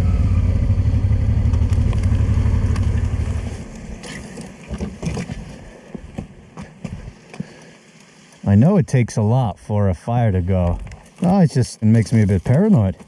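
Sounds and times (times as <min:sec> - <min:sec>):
motorcycle engine rumble: 0:00.0 - 0:04.1.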